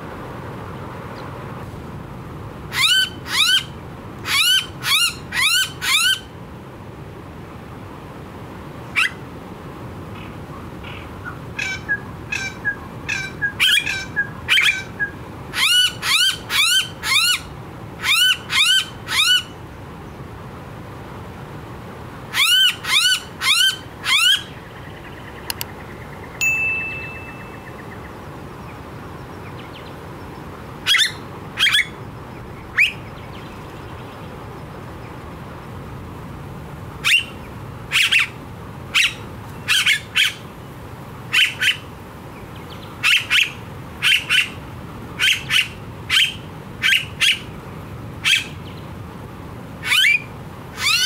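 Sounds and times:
bird calling with piping notes: 0:22.4 - 0:28.2.

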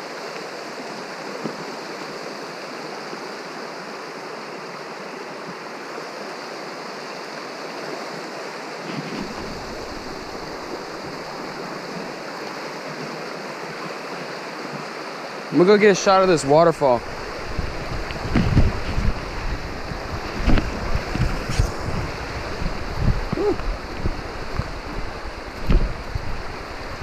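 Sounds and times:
creek rushing over rocks: 0:00.0 - 0:27.0.

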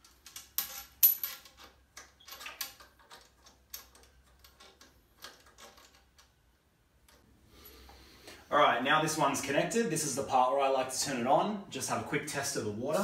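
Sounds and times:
hose fitting clicking and rattling: 0:00.0 - 0:06.4.

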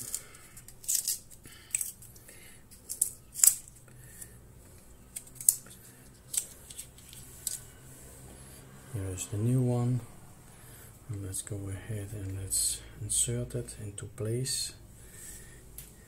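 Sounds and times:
scissors snipping plastic: 0:00.0 - 0:02.1, 0:05.1 - 0:07.6.

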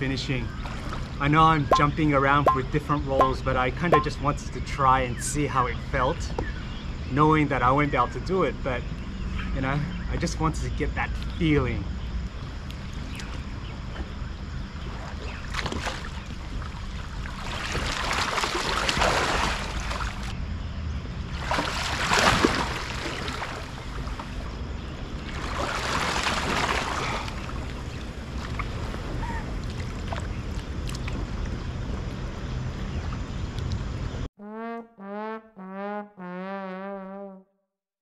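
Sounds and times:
low steady rumble: 0:00.0 - 0:15.5
water splashing and sloshing: 0:00.6 - 0:04.2, 0:14.0 - 0:20.4, 0:21.2 - 0:34.0.

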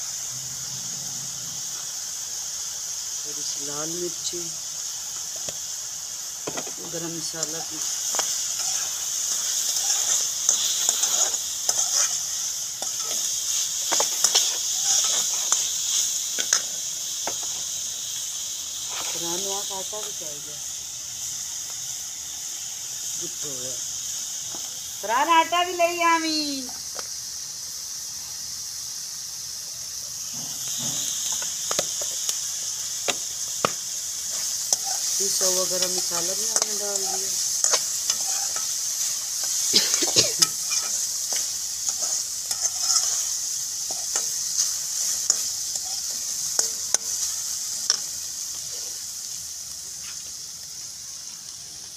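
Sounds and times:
food sizzling in oil: 0:00.0 - 0:51.9
metal spatula scraping pan: 0:08.1 - 0:15.6, 0:34.3 - 0:47.1.

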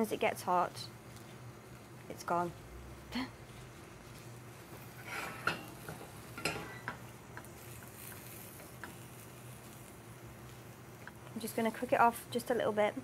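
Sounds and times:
spoon stirring spinach in a pan: 0:03.4 - 0:11.8.

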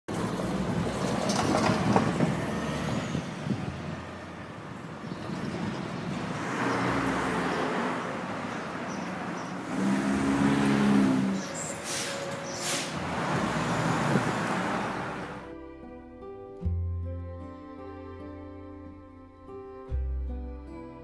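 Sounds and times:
passing vehicles: 0:00.1 - 0:15.5
engine drone: 0:09.6 - 0:15.5.

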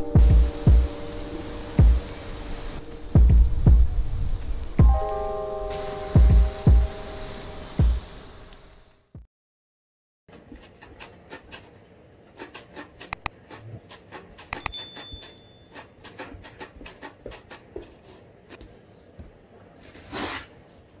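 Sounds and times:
cat scratching cardboard box: 0:10.3 - 0:14.6, 0:15.7 - 0:18.9, 0:19.8 - 0:20.7
short bell ring: 0:14.6 - 0:15.7.

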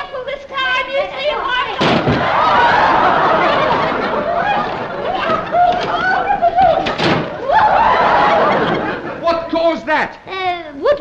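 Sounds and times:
audience laughing: 0:02.2 - 0:09.8.

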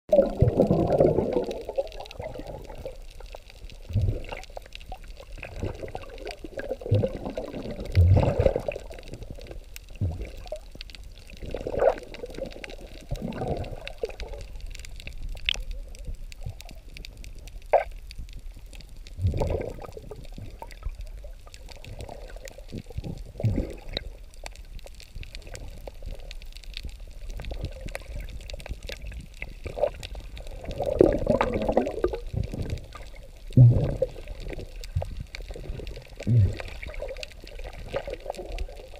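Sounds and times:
muffled underwater water sloshing: 0:00.1 - 0:38.9.

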